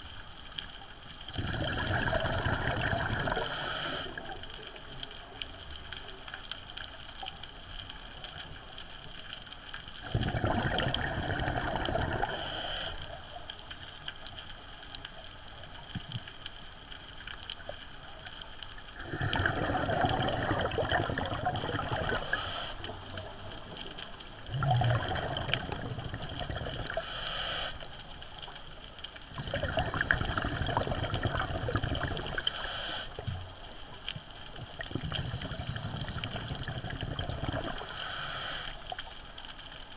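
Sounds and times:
exhaled bubbles underwater: 1.2 - 6.0, 10.0 - 13.4, 18.8 - 28.2, 29.2 - 39.1
regulator hiss: 3.4 - 4.3, 12.2 - 13.2, 22.1 - 22.9, 26.9 - 28.0, 32.4 - 33.4, 37.7 - 38.9.

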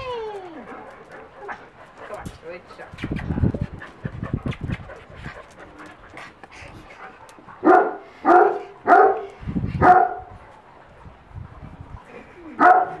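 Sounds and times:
dog barking: 7.6 - 10.3, 12.6 - 13.0.

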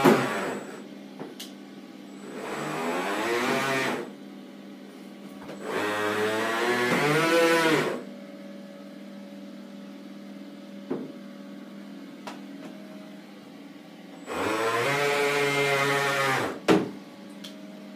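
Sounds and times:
electric motor whine: 0.0 - 0.9, 2.2 - 4.1, 5.6 - 8.1, 14.2 - 16.7.

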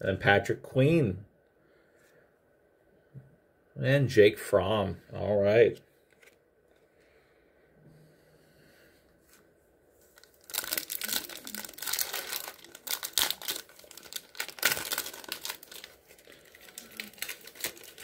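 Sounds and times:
foil wrapper crinkling and tearing: 10.1 - 18.0.

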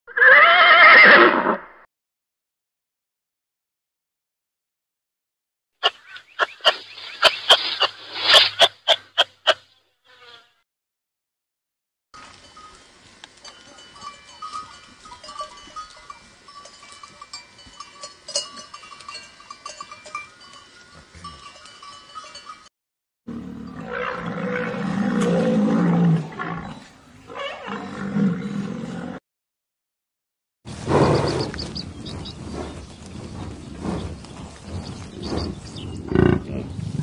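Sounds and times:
deep rough animal call: 23.3 - 26.8, 30.8 - 37.0.

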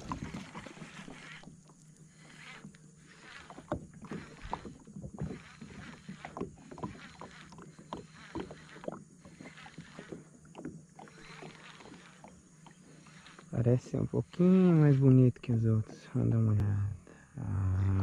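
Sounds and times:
fishing reel clicking: 0.2 - 10.2, 11.0 - 15.2.

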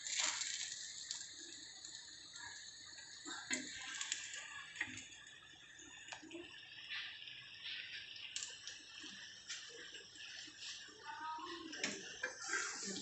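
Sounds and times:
flatbread sizzling in a pan: 0.0 - 13.0
metal spatula scraping a pan: 12.2 - 13.0.

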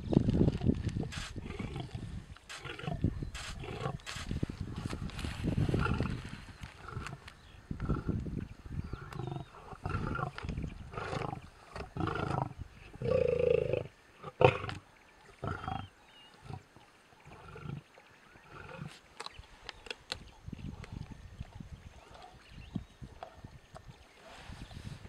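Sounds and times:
lions growling: 1.2 - 4.3, 5.7 - 8.2, 8.9 - 16.6
sharp clicks: 2.4 - 4.4.

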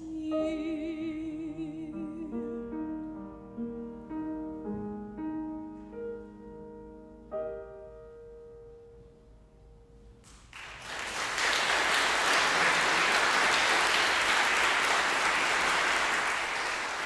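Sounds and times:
audience applause: 10.5 - 17.0.

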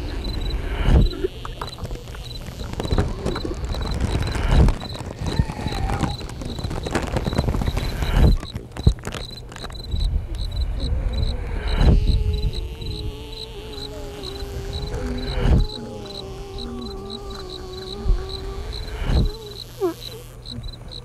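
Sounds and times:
high insect-like chirp: 0.0 - 21.0
scattered clicks and crackles: 0.2 - 12.0.

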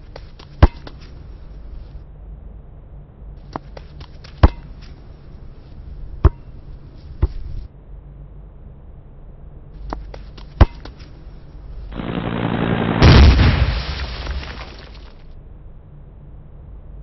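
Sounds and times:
rushing noise into loud boom: 11.9 - 14.7.

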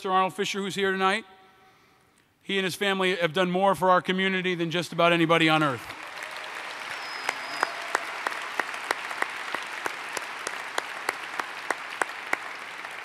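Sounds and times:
crowd applauding: 5.9 - 13.0
person clapping near microphone: 5.9 - 13.0.

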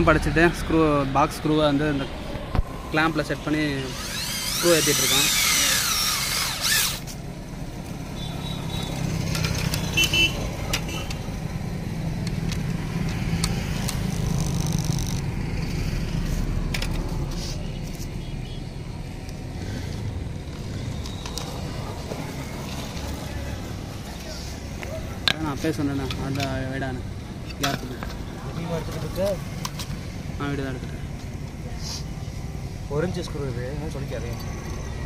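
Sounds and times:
electric drill whirring: 3.8 - 7.2.

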